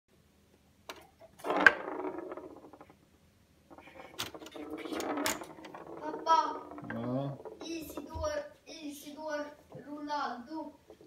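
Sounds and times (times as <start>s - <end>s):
foosball table clattering: 0.9s - 3.0s, 3.7s - 8.5s
metallic rattle of rods: 3.7s - 8.5s.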